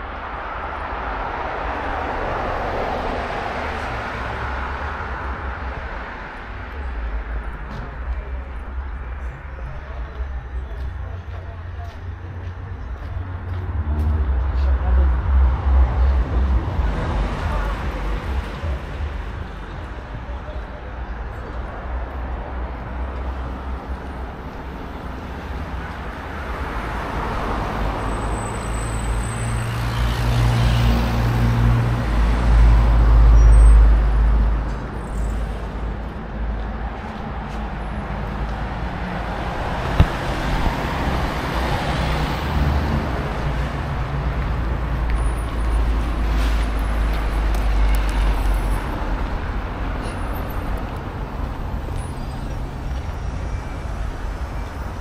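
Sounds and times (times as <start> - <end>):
vehicles passing: 0.0 - 55.0.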